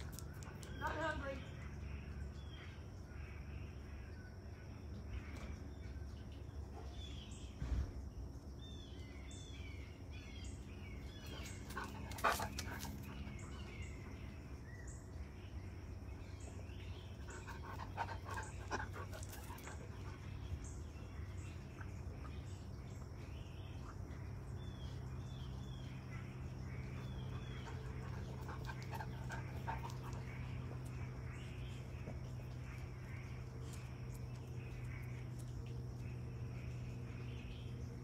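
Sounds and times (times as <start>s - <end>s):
birds chirping: 0.0s - 38.0s
dog sounds: 11.3s - 14.1s, 26.9s - 32.0s.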